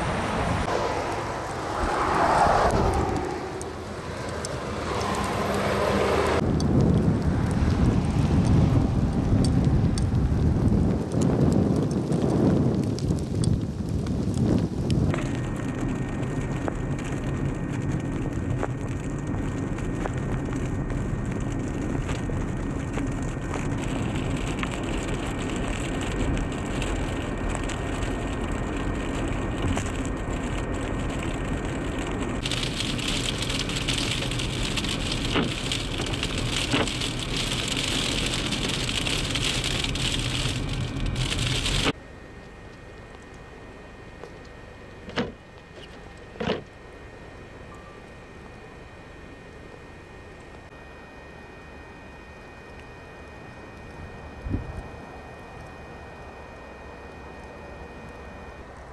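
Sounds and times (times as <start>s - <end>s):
vehicle driving on slushy road: 0.0s - 42.0s.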